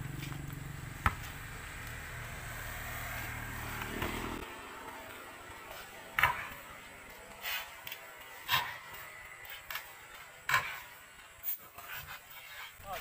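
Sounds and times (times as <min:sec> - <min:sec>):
basketball bouncing on concrete: 0:00.1 - 0:02.0, 0:03.6 - 0:07.2.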